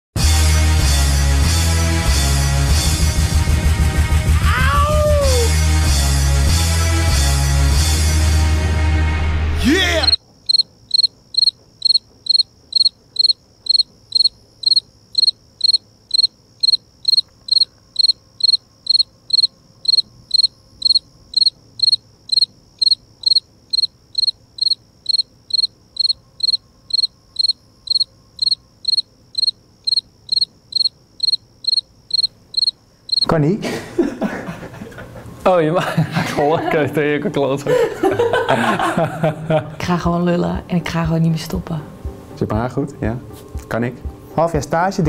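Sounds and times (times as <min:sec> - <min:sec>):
music: 0:00.2 - 0:10.2, 0:39.6 - 0:45.0
cricket chirping: 0:09.6 - 0:36.2.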